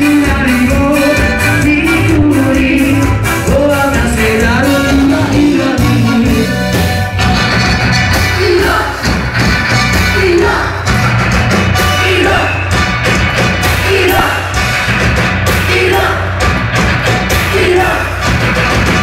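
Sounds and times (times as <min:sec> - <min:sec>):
person singing: 0:00.0 - 0:07.0, 0:08.2 - 0:09.2, 0:10.0 - 0:10.9, 0:11.8 - 0:12.6, 0:13.7 - 0:14.6, 0:15.5 - 0:16.4, 0:17.3 - 0:18.2
drums: 0:00.0 - 0:19.0
heavy bass line: 0:00.0 - 0:19.0
live rock music: 0:00.0 - 0:19.0.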